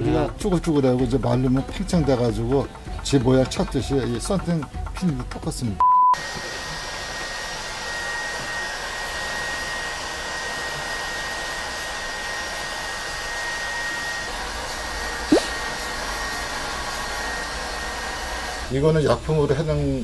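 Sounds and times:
heat gun blowing: 6.2 - 18.7.

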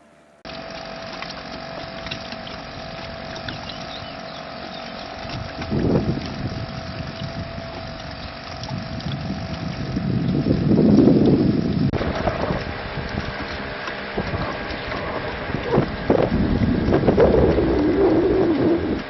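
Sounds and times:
outboard motor running: 0.0 - 19.0
wind buffeting microphone: 4.9 - 19.0.

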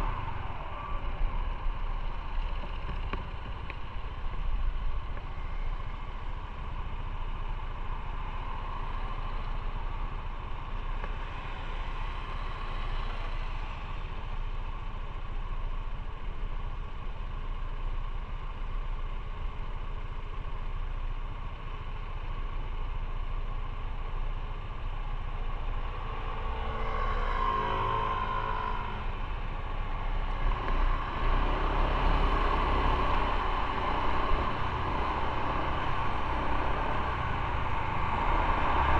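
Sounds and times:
motorcycle engine rumbling: 0.0 - 8.2, 27.7 - 38.8
road and traffic noise: 0.0 - 38.9.

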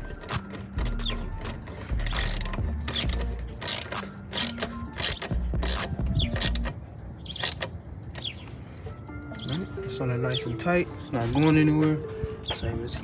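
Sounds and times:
ratchet wrench clicking: 0.1 - 6.7, 7.4 - 7.7.

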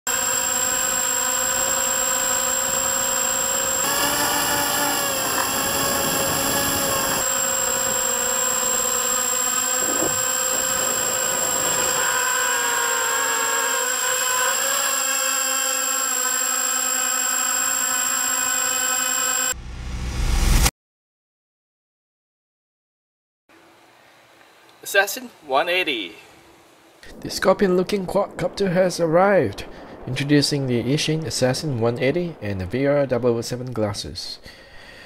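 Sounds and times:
quadcopter motors whining: 0.1 - 19.6
thin high-pitched whine: 0.1 - 19.6.

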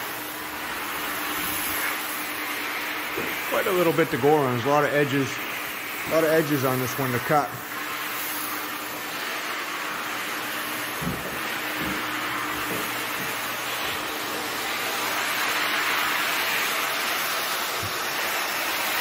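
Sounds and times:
shop vacuum running: 0.0 - 19.0.

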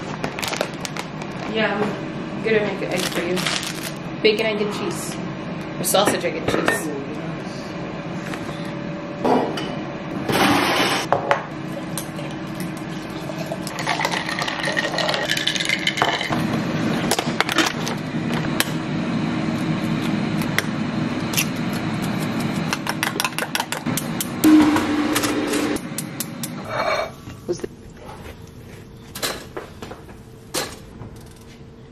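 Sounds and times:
packaging rustling: 0.1 - 1.5, 3.0 - 4.0
box and plastic packaging handled: 0.2 - 1.5.

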